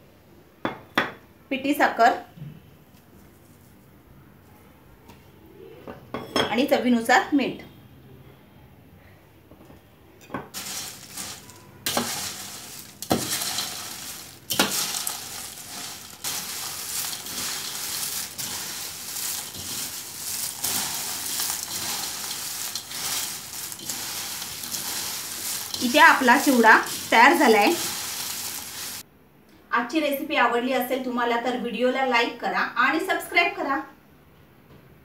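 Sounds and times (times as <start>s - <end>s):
corn flakes crackling in steel bowl: 10.5s - 29.0s.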